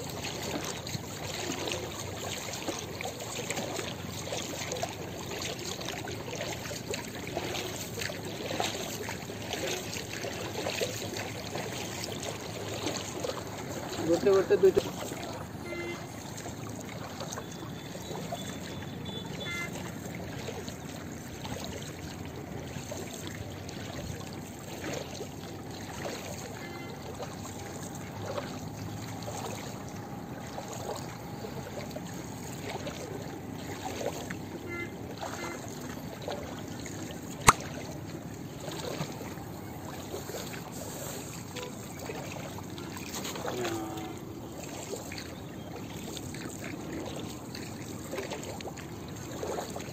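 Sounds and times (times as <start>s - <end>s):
water lapping against boat hull: 0.0s - 49.9s
sharp click: 37.5s - 37.7s.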